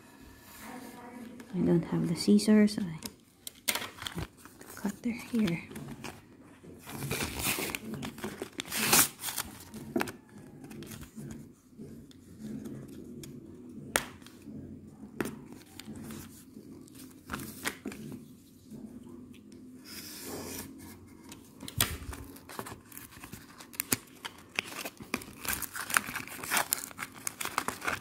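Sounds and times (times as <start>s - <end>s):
packaging crinkling and tearing: 3.4s - 6.2s, 6.8s - 11.2s, 20.6s - 28.0s.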